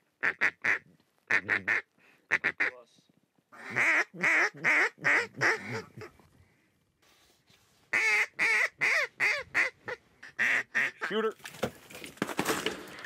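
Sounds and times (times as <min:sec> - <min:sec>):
duck call quacks: 0:00.2 - 0:02.8, 0:03.6 - 0:06.0, 0:07.9 - 0:11.2.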